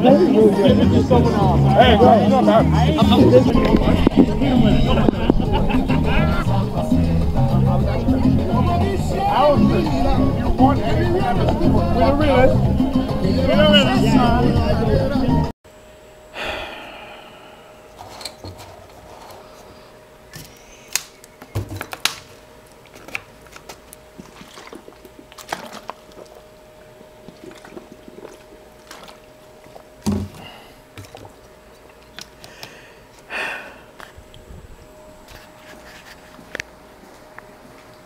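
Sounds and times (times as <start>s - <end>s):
faint steady hum: 15.7s - 38.0s.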